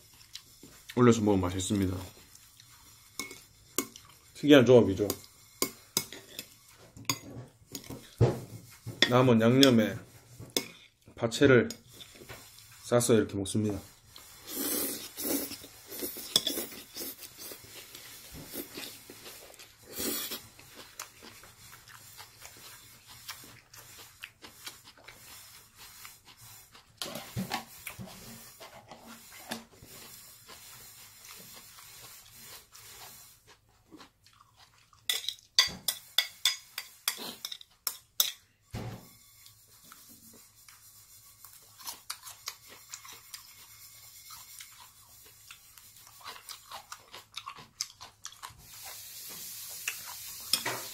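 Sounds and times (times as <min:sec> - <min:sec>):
person chewing noodles: 0:00.0 - 0:01.0, 0:02.0 - 0:04.4, 0:14.1 - 0:35.6, 0:41.4 - 0:50.5.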